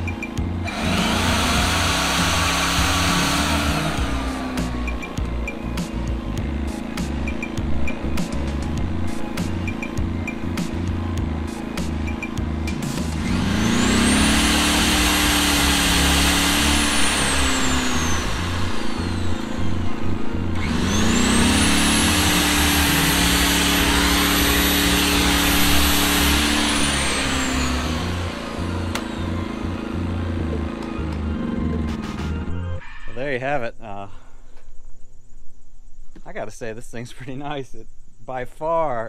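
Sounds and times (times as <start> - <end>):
generator engine running: 0.0 - 32.8
drill motor whine: 0.0 - 33.1.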